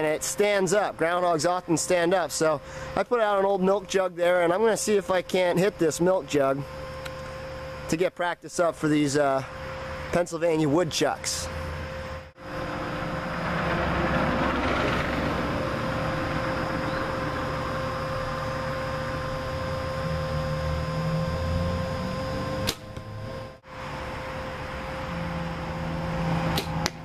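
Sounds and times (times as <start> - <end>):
steady mechanical hum: 0.0 - 27.0
bow release snap: 22.6 - 23.0, 26.5 - 27.0.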